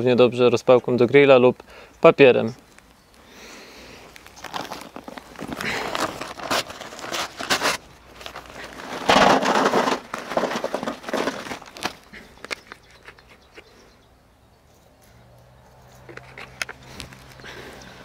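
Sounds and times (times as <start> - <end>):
bag crinkling: 4.0 - 13.2
small clicks and rustles: 4.0 - 13.7, 14.7 - 17.9
charcoal pouring into metal can: 8.7 - 11.8.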